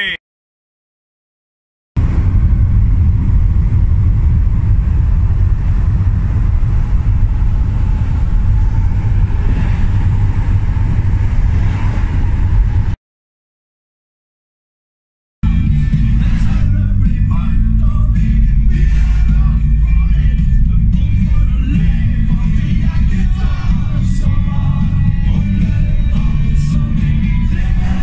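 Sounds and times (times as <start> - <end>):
road and engine rumble in van: 2.0 - 13.0, 15.4 - 28.0.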